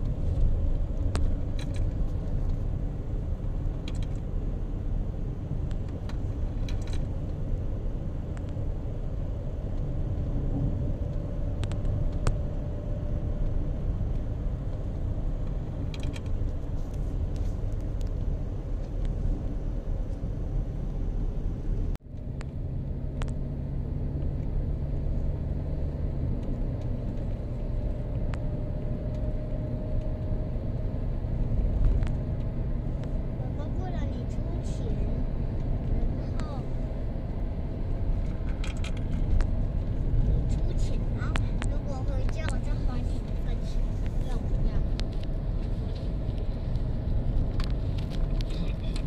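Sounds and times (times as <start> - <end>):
light clicks and rattles: 0.0 - 2.6, 13.4 - 19.2, 38.1 - 49.0
vehicle road and engine noise: 0.0 - 49.0.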